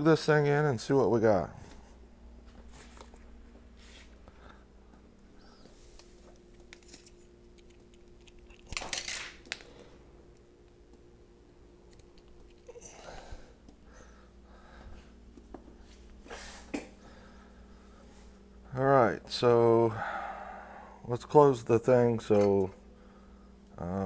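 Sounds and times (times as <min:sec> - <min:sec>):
faint steady hum: 0:00.0 - 0:24.0
soft rustling: 0:01.6 - 0:04.3.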